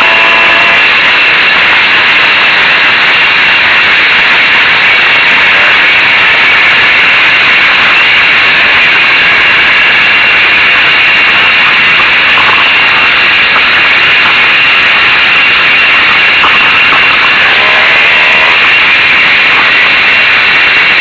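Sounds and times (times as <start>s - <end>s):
two-stroke moped engine running: 0.0s - 1.6s, 8.4s - 21.0s.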